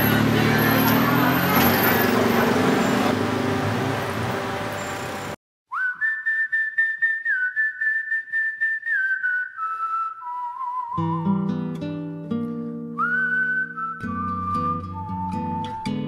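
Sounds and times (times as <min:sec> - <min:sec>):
street voices: 0:00.0 - 0:05.4
traffic: 0:00.0 - 0:05.4
whistled melody: 0:05.7 - 0:11.8, 0:12.8 - 0:16.0
acoustic guitar chords: 0:11.0 - 0:16.0.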